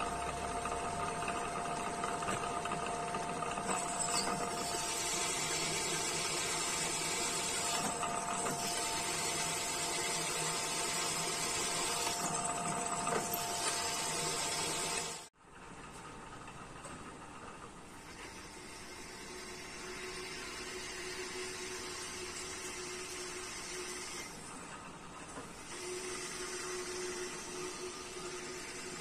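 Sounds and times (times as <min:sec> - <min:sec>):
spindle motor whining: 0:00.0 - 0:15.3
drill hissing through steel: 0:03.6 - 0:15.3.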